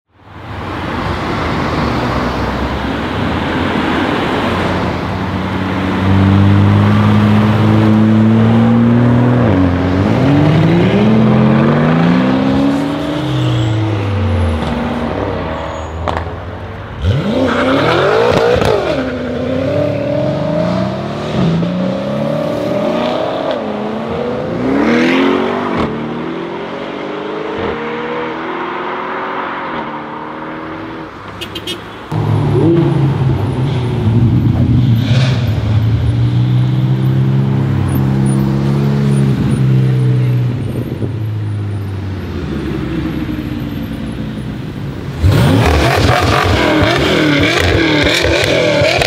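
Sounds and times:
cars accelerating past: 0.8s - 31.4s, 32.1s - 41.2s, 45.1s - 49.0s.

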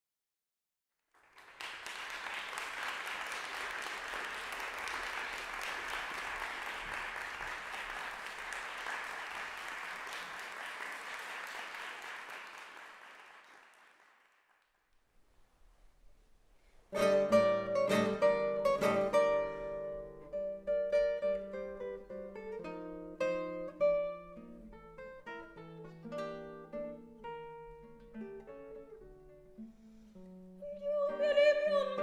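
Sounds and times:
audience applauding: 1.1s - 14.8s.

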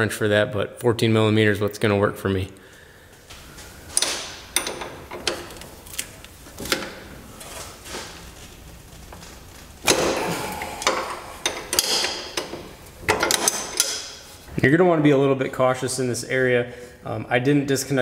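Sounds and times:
wrench clinking on metal bolt: 4.0s - 5.7s, 10.8s - 14.2s.

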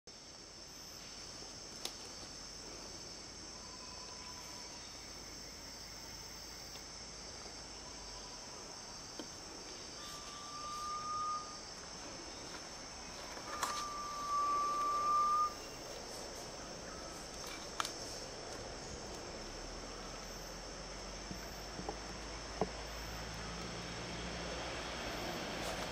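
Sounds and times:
forest insects droning: 0.1s - 25.9s
bird whistling: 10.0s - 11.6s, 13.5s - 15.8s.

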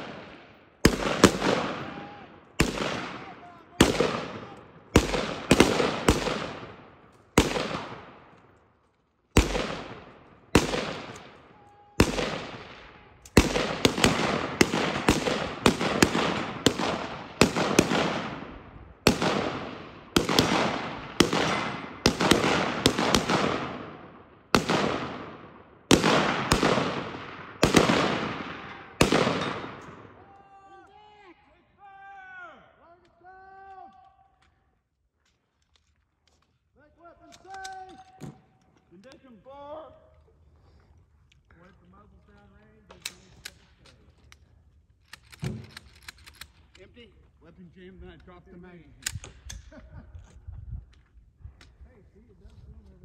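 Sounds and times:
rifle gunshots with echo: 0.0s - 8.6s, 9.3s - 30.2s.

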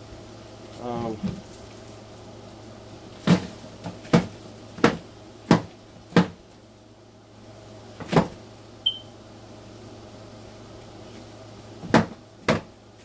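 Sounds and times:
knocks on cardboard: 3.2s - 6.4s, 8.0s - 8.4s, 11.8s - 12.7s.

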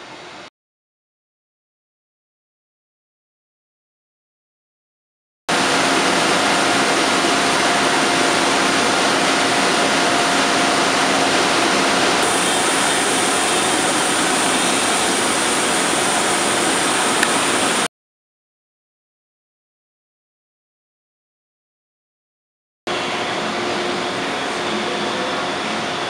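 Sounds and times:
machine hum: 5.5s - 17.9s, 22.9s - 26.0s
printing press running: 5.5s - 17.9s.

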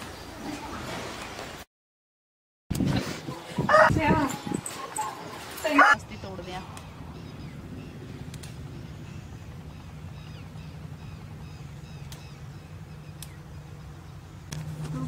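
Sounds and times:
small birds chirping: 4.0s - 15.0s
low engine hum: 4.2s - 15.0s.

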